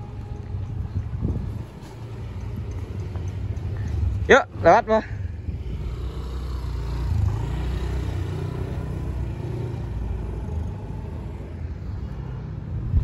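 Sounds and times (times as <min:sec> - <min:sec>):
car driving slowly past: 0:00.0 - 0:13.0.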